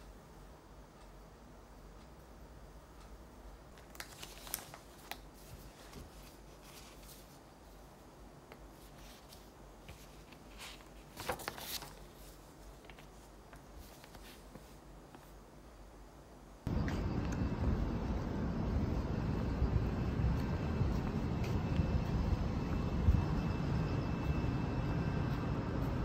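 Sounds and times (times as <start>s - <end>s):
book pages turning: 3.7s - 7.6s, 8.5s - 15.4s.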